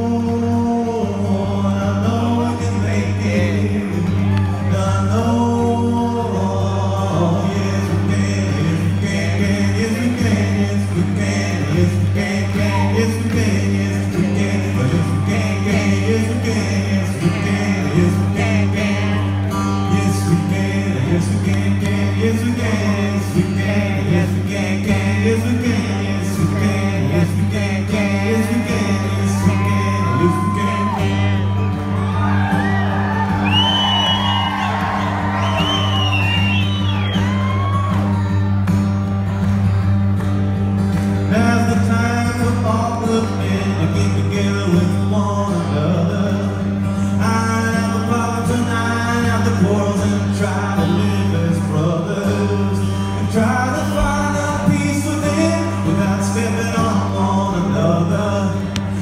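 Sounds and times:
person singing wordlessly: 0:00.0 - 0:31.6
strummed acoustic guitar: 0:00.0 - 0:59.0.

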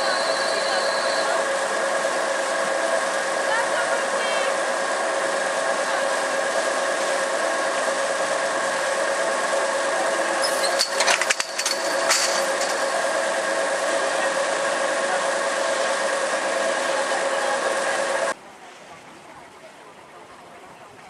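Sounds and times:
steady mechanical hum: 0:00.0 - 0:21.0
clicks and knocks: 0:10.6 - 0:13.0.

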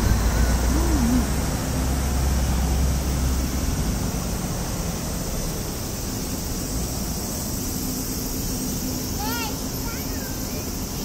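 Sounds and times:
passing vehicle rumble: 0:00.0 - 0:04.7
street traffic rushing: 0:00.0 - 0:11.0.

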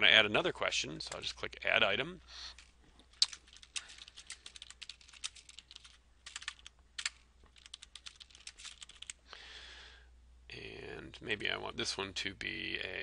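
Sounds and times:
computer keyboard typing: 0:03.2 - 0:09.2.

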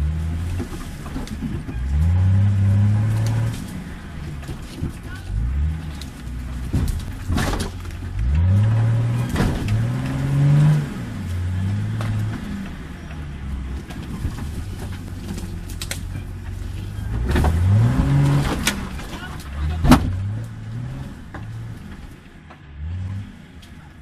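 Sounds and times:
off-road vehicle engine revving: 0:00.0 - 0:24.0
sharp knocks and cracks: 0:03.0 - 0:13.2, 0:13.8 - 0:16.6, 0:17.2 - 0:20.6.

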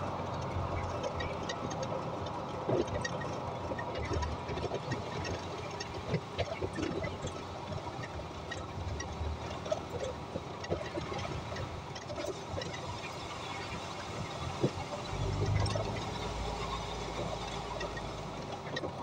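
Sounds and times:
bus road and drivetrain rumble: 0:00.0 - 0:19.0.

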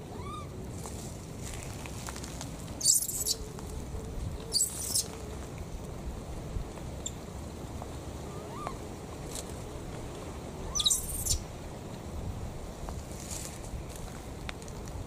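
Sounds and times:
animal calls rising and falling: 0:10.7 - 0:11.4.

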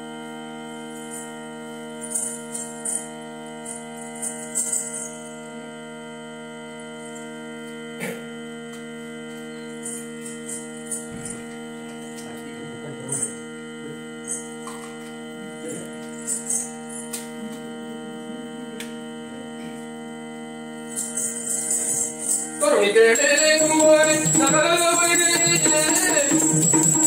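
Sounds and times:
musical drone: 0:20.9 - 0:27.0
small bells jingling: 0:20.9 - 0:27.0.

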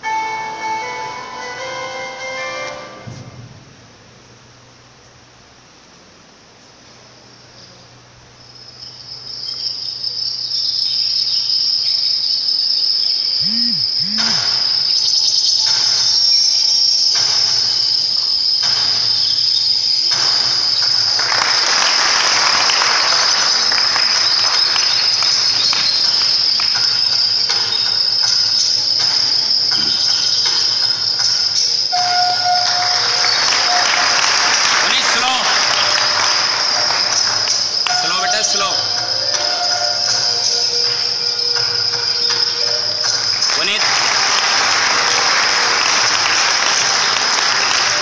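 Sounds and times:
cricket chirring: 0:06.5 - 0:44.3.

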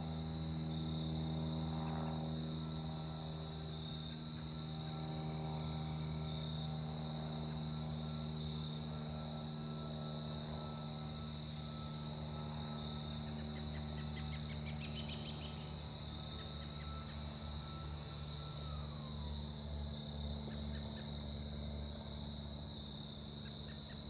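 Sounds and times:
crickets and insects chirping: 0:00.0 - 0:24.0
distant light aircraft drone: 0:00.0 - 0:24.0.

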